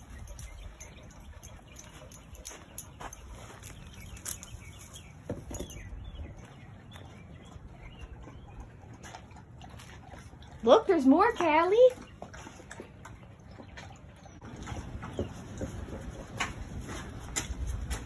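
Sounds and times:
footsteps on dirt: 0:01.6 - 0:05.1.

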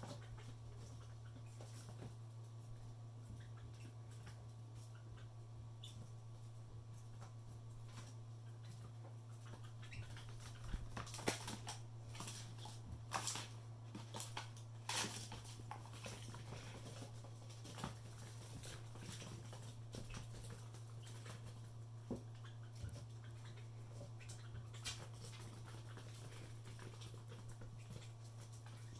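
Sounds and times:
small animals scampering on wood: 0:00.0 - 0:28.9
steady low hum: 0:00.0 - 0:28.9.

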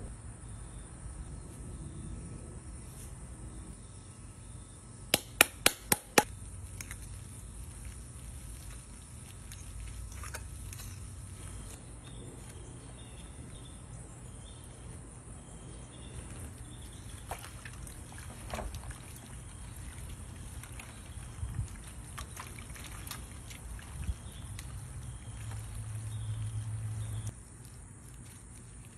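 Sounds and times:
steady low rumble: 0:00.0 - 0:05.1
wet squelching of meat: 0:06.3 - 0:11.8, 0:15.8 - 0:28.9.

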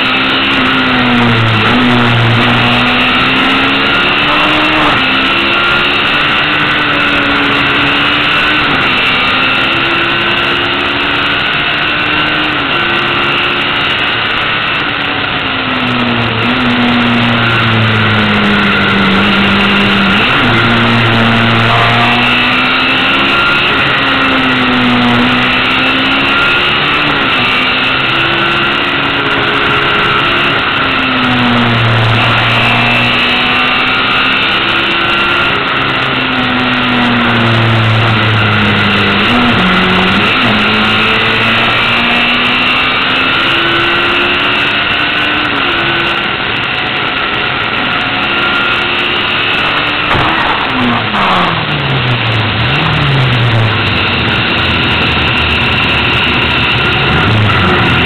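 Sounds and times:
racing car engine revving: 0:00.0 - 0:58.0
wind and road rush: 0:00.0 - 0:58.0.

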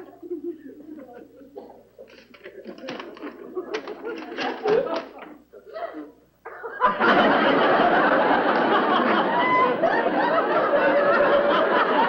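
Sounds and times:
audience laughter: 0:02.7 - 0:12.0.

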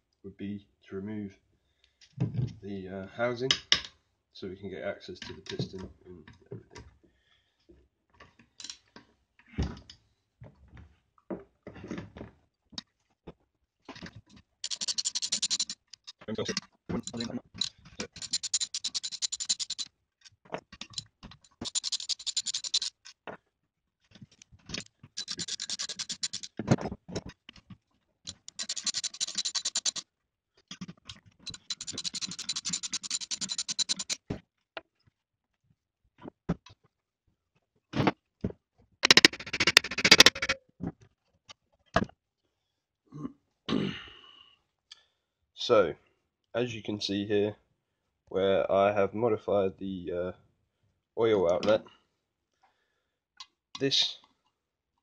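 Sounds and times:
socket ratchet clicking: 0:14.6 - 0:15.8, 0:17.0 - 0:19.9, 0:21.6 - 0:23.0, 0:25.2 - 0:26.6, 0:28.3 - 0:30.0, 0:31.5 - 0:34.2, 0:39.0 - 0:40.6.

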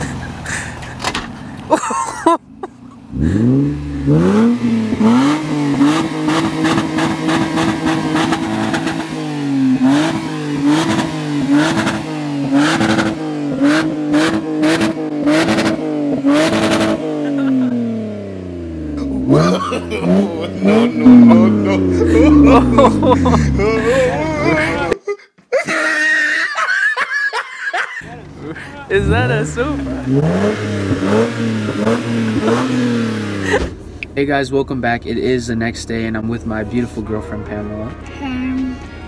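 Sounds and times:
car engine revving: 0:00.0 - 0:01.7, 0:02.3 - 0:25.0, 0:28.0 - 0:38.0.

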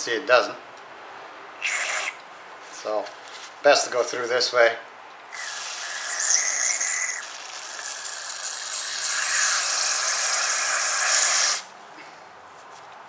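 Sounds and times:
aerosol spray hissing: 0:01.6 - 0:02.2, 0:08.4 - 0:11.7.

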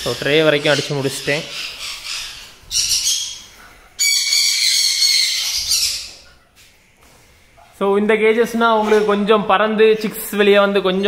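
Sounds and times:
lovebirds calling shrilly: 0:00.0 - 0:07.5.

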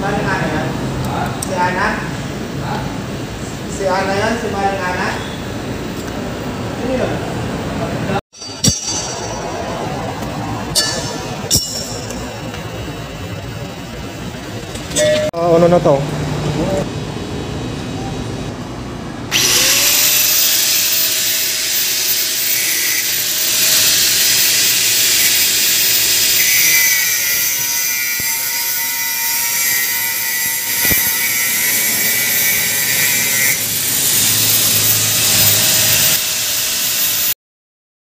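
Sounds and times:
angle grinder cutting steel: 0:08.4 - 0:15.3, 0:19.3 - 0:37.4.

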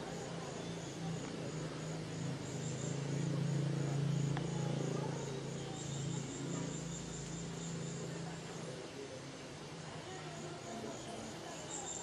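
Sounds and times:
insects chirring: 0:00.0 - 0:08.7, 0:09.5 - 0:12.0.

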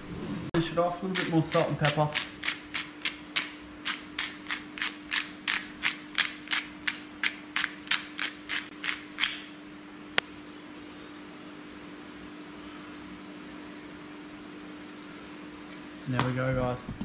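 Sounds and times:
pepper grinder crunching: 0:01.0 - 0:09.6.

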